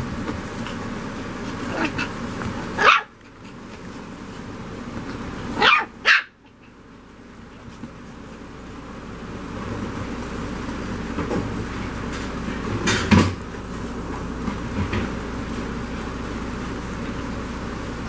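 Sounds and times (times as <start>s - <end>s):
puppies yapping: 1.5s - 3.9s, 5.5s - 6.8s.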